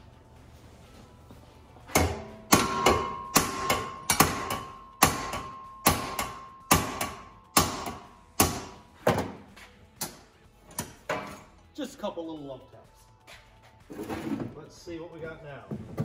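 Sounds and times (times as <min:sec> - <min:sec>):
hammer striking steel bar: 0:01.9 - 0:09.4.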